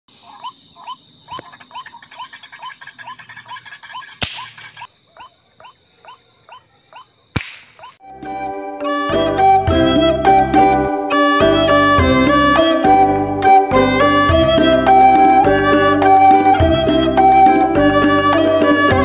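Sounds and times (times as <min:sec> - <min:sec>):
waterhen calling: 0:00.1 - 0:07.1
night insects droning: 0:00.1 - 0:08.0
sharp cracks: 0:04.2 - 0:04.9, 0:07.3 - 0:08.0.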